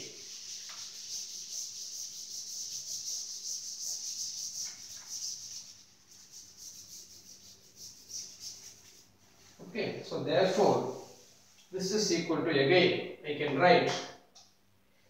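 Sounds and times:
cloth wiping a blackboard: 0.0s - 9.8s, 10.5s - 11.7s.

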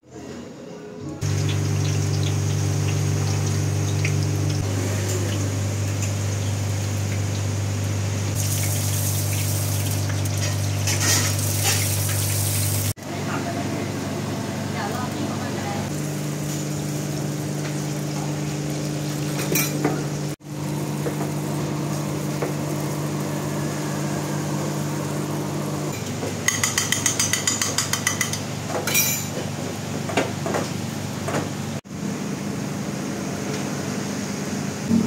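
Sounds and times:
gas stove hum: 1.0s - 35.0s
egg sizzling in hot oil: 8.3s - 13.0s.

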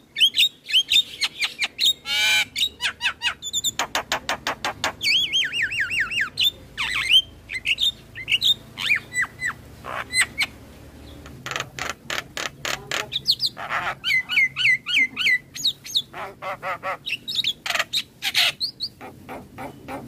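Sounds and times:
bird whistling song: 0.0s - 10.5s, 13.2s - 16.1s
bird chirps: 0.0s - 20.0s
harsh rasping bird calls: 0.0s - 20.0s.

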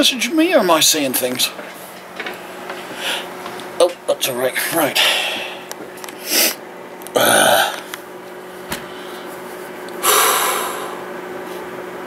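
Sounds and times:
faint steady hum: 0.0s - 12.0s
man sniffing: 5.0s - 6.6s, 10.0s - 11.0s
gusty out-breath or burp: 7.1s - 7.9s
long exhale: 10.0s - 11.1s.

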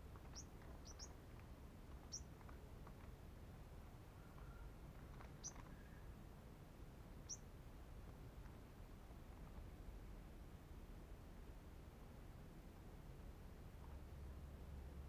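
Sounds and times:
bird chirps: 0.3s - 1.2s, 2.1s - 2.3s, 5.2s - 6.0s, 7.2s - 7.4s.

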